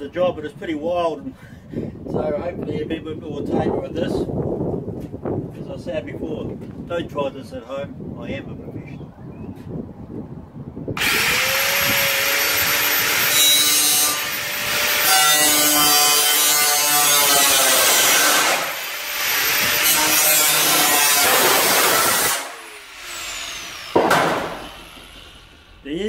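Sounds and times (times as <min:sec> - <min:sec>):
angle grinder cutting metal: 0:11.0 - 0:25.8.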